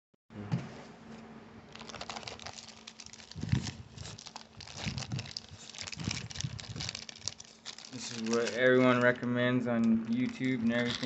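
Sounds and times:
plastic bag crinkling: 0:01.7 - 0:11.0.

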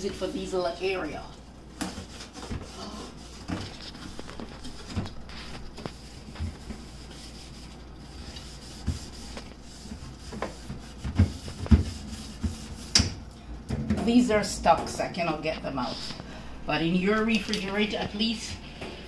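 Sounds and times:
scouring pad scrubbing: 0:05.4 - 0:13.0.

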